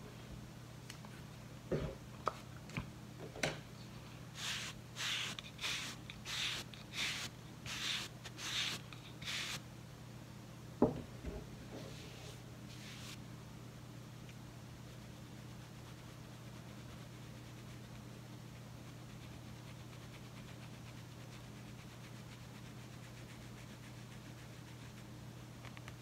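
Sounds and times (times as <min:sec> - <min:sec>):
fingernails scratching scalp: 0:04.4 - 0:09.6.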